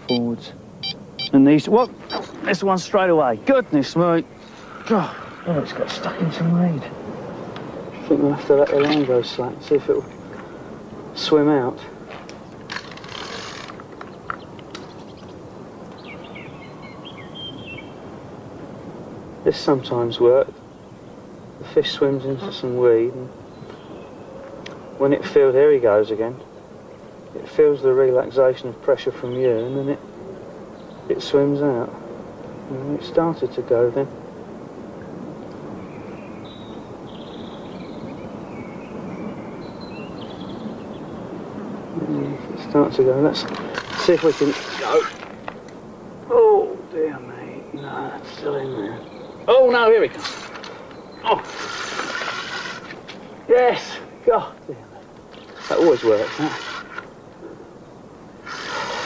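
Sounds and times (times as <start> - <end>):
small bird twittering: 0.0 - 2.6, 13.3 - 18.0
faint bird calls: 0.0 - 6.4, 20.6 - 27.3, 47.5 - 59.0
wind rushing: 0.0 - 11.2
steady background hiss: 0.0 - 59.0
brief rustle: 12.1 - 15.3, 43.4 - 45.6.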